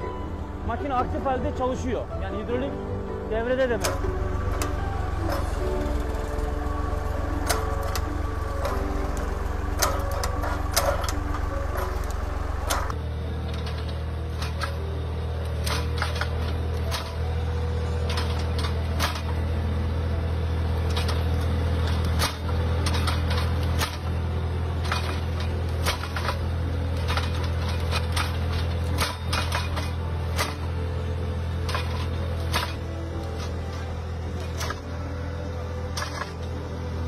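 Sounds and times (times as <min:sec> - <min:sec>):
tractor engine running: 0:00.0 - 0:37.0
implement clicking and knocking: 0:07.3 - 0:13.0.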